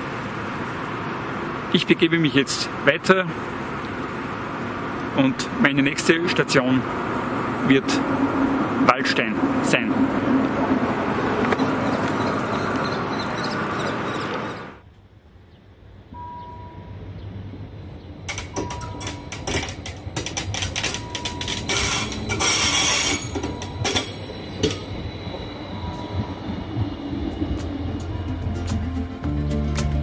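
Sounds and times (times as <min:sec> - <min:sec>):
train wheels clicking on track: 0:05.0 - 0:14.8, 0:18.3 - 0:29.0.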